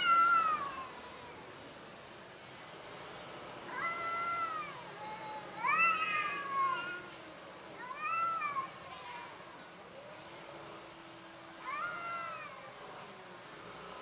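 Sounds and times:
cat yowling: 0:00.0 - 0:01.4, 0:03.7 - 0:04.8, 0:05.6 - 0:07.0, 0:07.8 - 0:08.7, 0:11.6 - 0:12.7.

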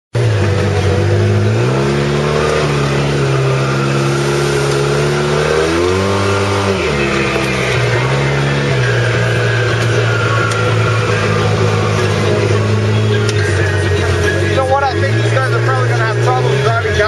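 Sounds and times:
off-road vehicle engine running: 0:00.1 - 0:17.0.

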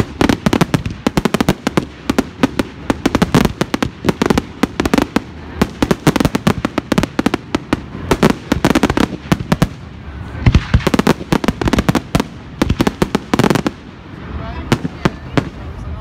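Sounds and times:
fireworks cracking and popping: 0:00.0 - 0:16.0
deep firework booms: 0:10.4 - 0:13.9.

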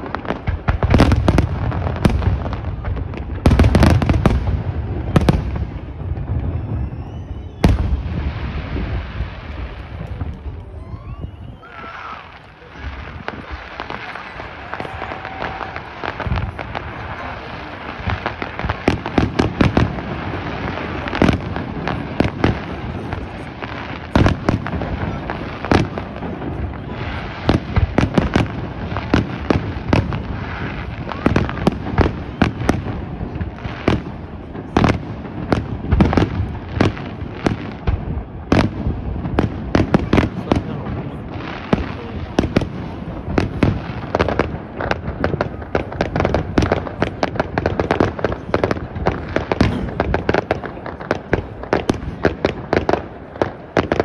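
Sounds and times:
fireworks bursting and crackling: 0:00.0 - 0:54.0.

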